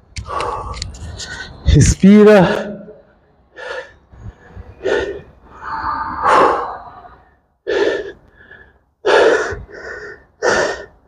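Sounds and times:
man breathing hard: 3.5s - 5.6s, 6.2s - 11.0s.

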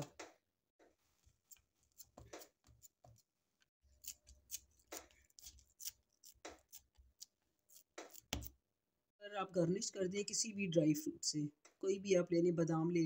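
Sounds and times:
spatula scraping and patting mixture: 0.0s - 8.6s.

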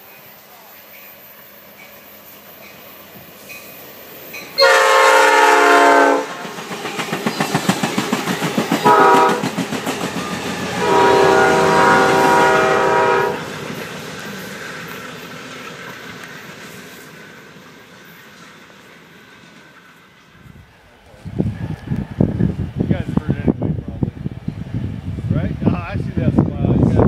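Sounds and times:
train rumble: 0.0s - 27.0s
train wheels clacking: 0.8s - 20.4s
train horn blasts: 4.6s - 6.5s, 8.8s - 9.5s, 10.5s - 13.5s.

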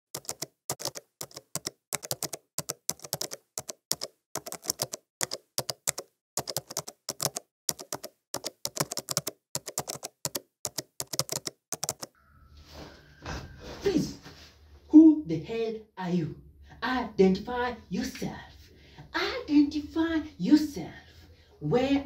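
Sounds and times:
laptop keyboard typing: 0.1s - 12.1s.

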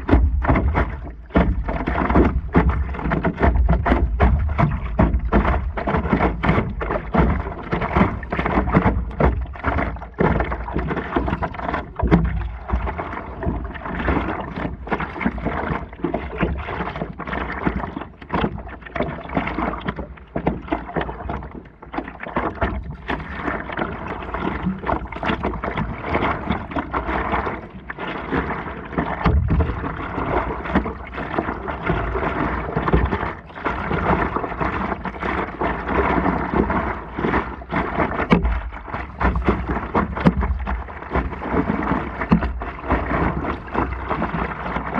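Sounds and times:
water splashing against paddleboard: 0.0s - 44.9s.

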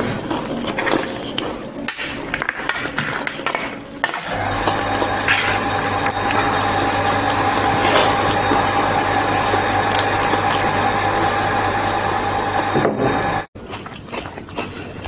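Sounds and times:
eating noises: 0.0s - 4.0s, 5.9s - 11.5s, 13.6s - 15.0s
low hum with held tone: 0.0s - 15.0s.

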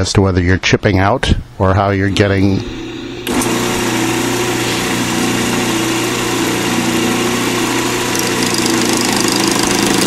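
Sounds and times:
lathe running: 2.5s - 10.0s
chisel chipping spinning blank: 5.1s - 10.0s.

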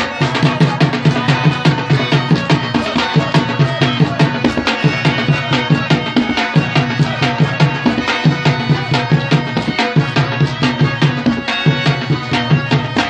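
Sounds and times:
barrel drum beat: 0.0s - 13.0s
harmonium reeds: 0.0s - 13.0s.

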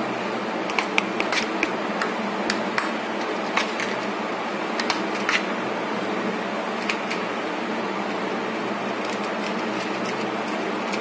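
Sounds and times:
oil crackling and popping: 0.7s - 4.1s, 4.8s - 5.5s.

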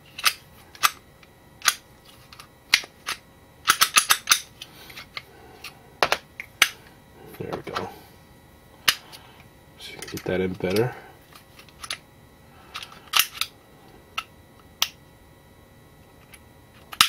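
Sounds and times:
metallic pistol parts clicking: 2.7s - 4.5s.

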